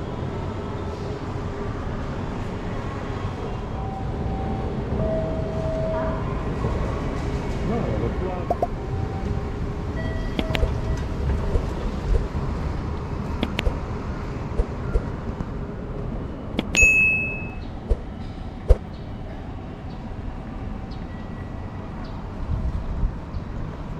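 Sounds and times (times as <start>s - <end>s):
low city rumble: 0.0s - 23.9s
sharp clicks: 10.4s - 10.7s, 13.4s - 13.8s, 16.6s - 16.8s
bell-like ding: 16.7s - 17.7s.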